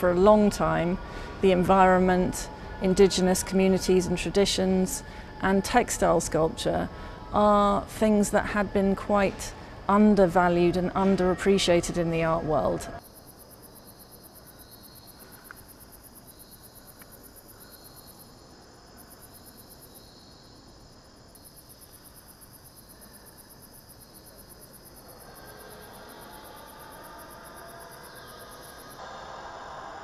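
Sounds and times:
insect chirping: 13.0 - 29.0.

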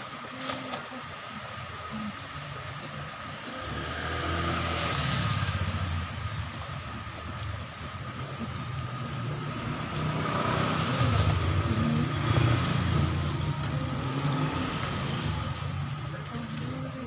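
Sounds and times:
low engine rumble: 0.0 - 17.0.

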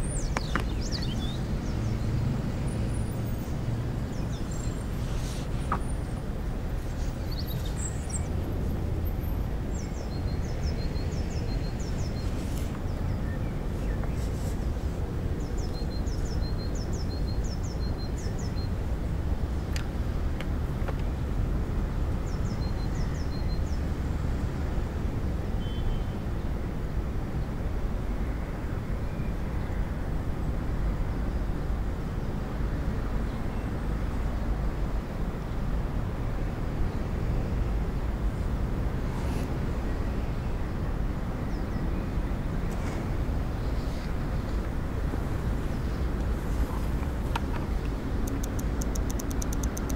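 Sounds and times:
distant traffic rumble: 0.0 - 25.3, 33.6 - 49.9
small bird chirping: 48.2 - 49.9.

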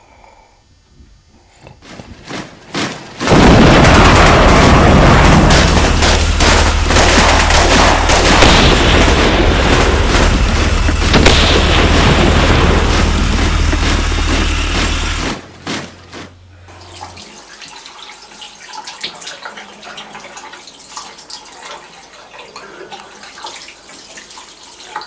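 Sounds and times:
continuous gunfire: 2.2 - 16.2
gunshots: 2.7 - 16.0
explosions: 3.1 - 15.6.

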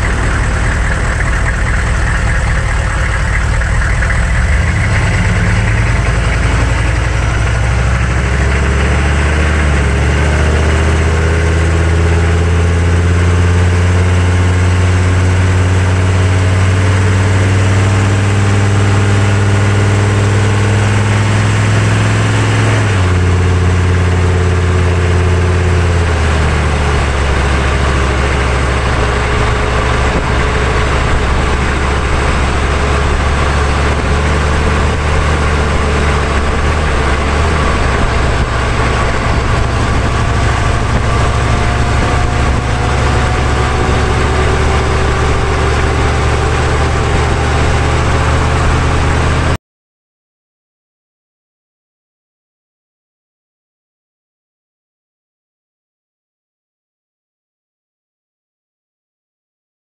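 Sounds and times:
diesel truck engine accelerating: 0.0 - 49.6
tyre and road noise: 0.0 - 49.6.

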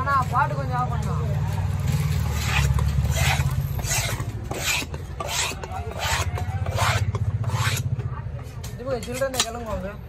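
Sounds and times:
knife scraping wooden block: 2.0 - 8.1.

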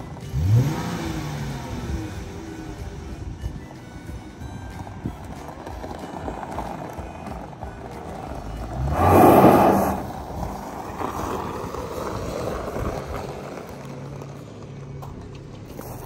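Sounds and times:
car engine revving and idling: 0.0 - 16.0.

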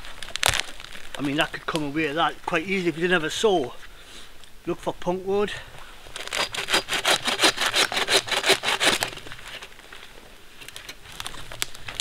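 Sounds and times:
hand saw cutting wood: 6.2 - 9.2.

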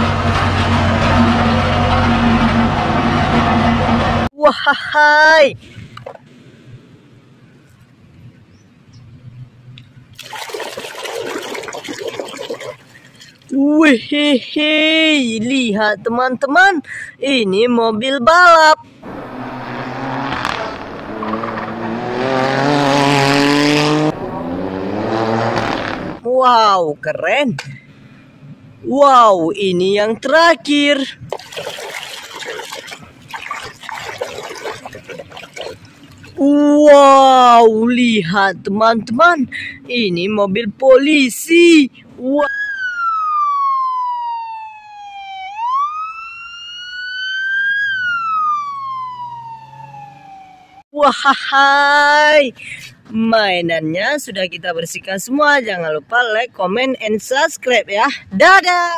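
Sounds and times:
race car engine running hard: 19.0 - 26.2
police siren wailing: 42.4 - 50.8.

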